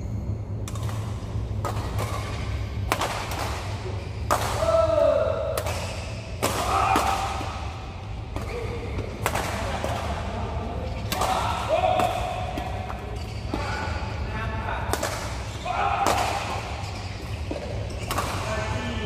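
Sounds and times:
steady low hum: 0.0s - 19.0s
rackets hitting shuttlecock: 0.6s - 14.0s, 14.8s - 18.8s
players shouting: 4.4s - 5.6s, 6.4s - 7.8s, 11.1s - 12.9s, 15.5s - 16.8s.

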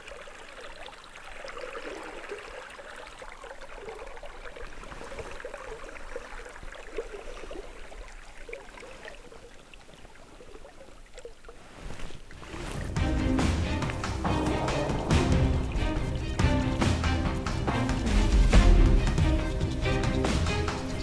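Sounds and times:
river water lapping against boat: 0.0s - 21.0s.

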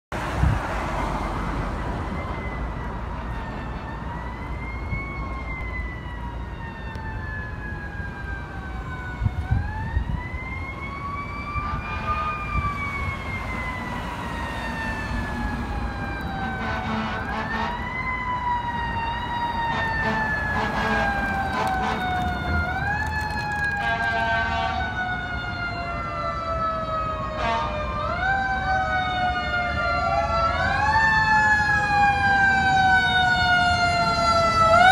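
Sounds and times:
emergency sirens wailing: 0.2s - 34.9s
short loud horn blasts: 16.6s - 17.8s, 23.8s - 24.8s.

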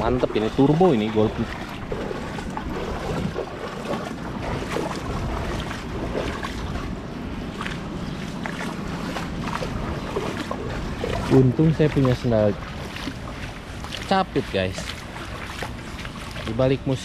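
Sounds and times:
wind on microphone: 0.0s - 12.2s
footsteps sloshing through water: 0.0s - 17.0s.

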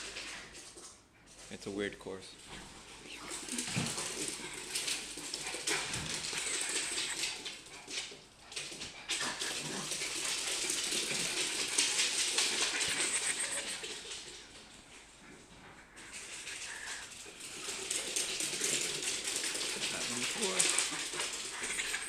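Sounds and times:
dog claws clicking on wood floor: 3.2s - 14.4s, 16.0s - 22.0s.

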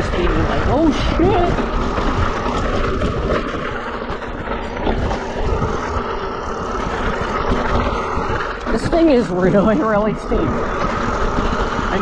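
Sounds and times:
bike rattling: 0.0s - 12.0s
wind buffeting microphone: 0.0s - 12.0s
tyres crunching over loose rock: 0.3s - 9.1s.

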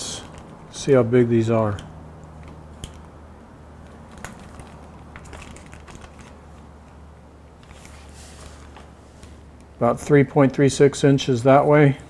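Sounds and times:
plastic packaging crinkling: 4.0s - 6.7s.

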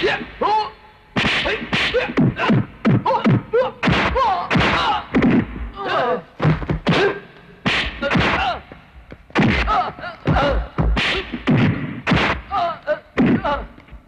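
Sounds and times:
punch sound effects: 1.2s - 3.0s, 6.4s - 8.6s, 9.4s - 12.5s
men grunting and shouting: 1.4s - 7.3s, 9.5s - 11.4s.

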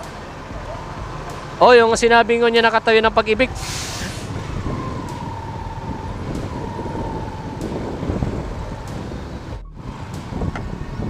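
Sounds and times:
motorcycle engine: 0.0s - 11.0s
wind buffeting microphone: 0.0s - 11.0s.

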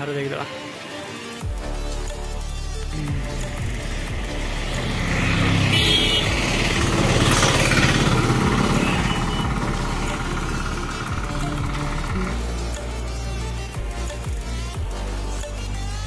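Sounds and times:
vehicle passing by: 3.3s - 12.5s.

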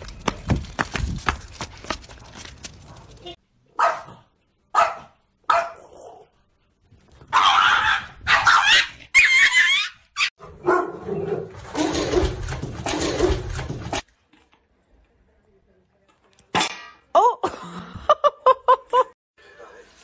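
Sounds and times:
dogs barking: 3.8s - 5.9s, 10.4s - 12.4s.

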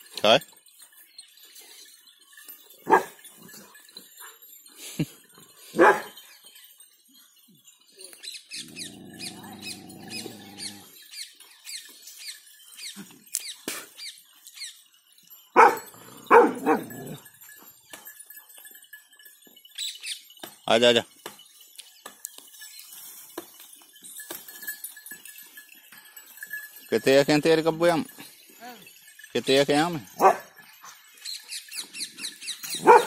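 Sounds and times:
dog barking: 2.8s - 3.2s, 5.8s - 6.2s, 15.6s - 17.2s, 30.2s - 30.5s, 32.8s - 33.0s
long low animal call: 8.7s - 11.0s.

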